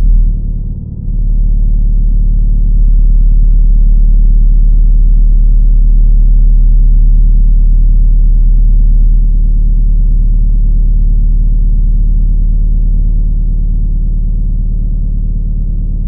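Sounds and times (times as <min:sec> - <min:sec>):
deep rumbling drone: 0:00.0 - 0:16.0.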